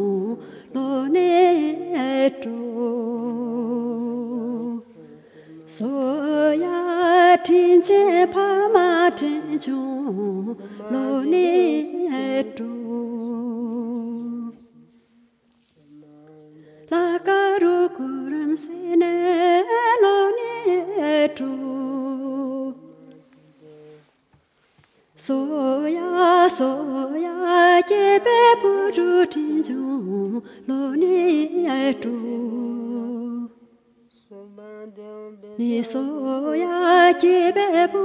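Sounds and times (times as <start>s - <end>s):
solo voice singing: 0.0s - 14.9s, 25.2s - 38.0s.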